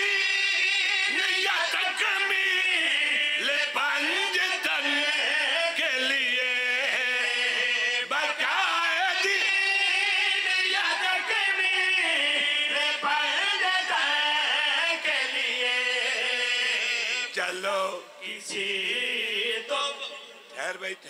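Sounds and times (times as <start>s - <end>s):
men singing through microphones: 0.0s - 21.0s.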